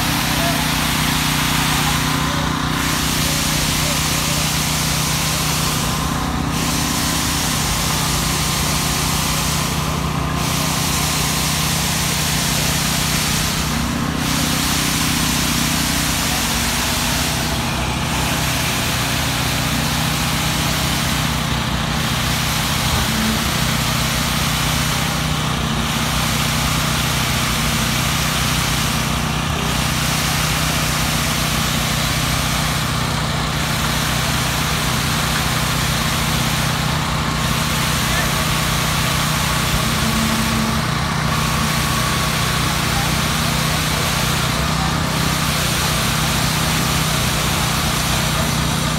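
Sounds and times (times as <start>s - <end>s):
small petrol engines running: 0.0s - 48.9s.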